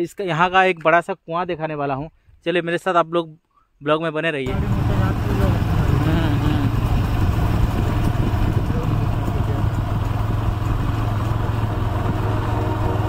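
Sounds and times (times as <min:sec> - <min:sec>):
motorcycle engine running: 0:04.5 - 0:13.0
wind noise on microphone: 0:05.1 - 0:13.0.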